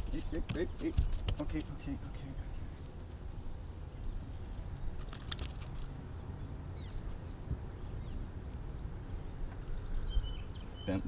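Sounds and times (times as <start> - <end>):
metal clinking of lure blades: 2.2 - 7.9.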